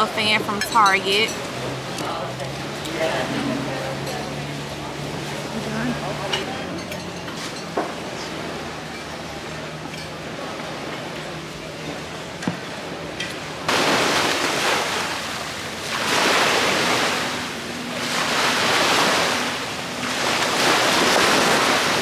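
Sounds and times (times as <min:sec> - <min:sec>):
sea waves washing onto beach: 0:07.4 - 0:22.0.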